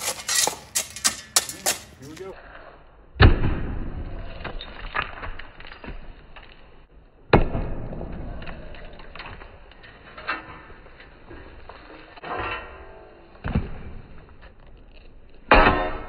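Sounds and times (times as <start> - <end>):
concrete knocks and clatter: 0.0 - 2.3
heavy impacts breaking concrete: 0.0 - 2.3, 15.4 - 16.0.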